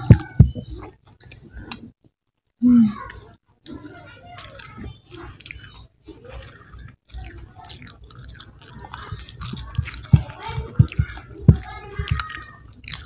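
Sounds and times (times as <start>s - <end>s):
chewing crispy fried chicken: 2.9s - 13.0s.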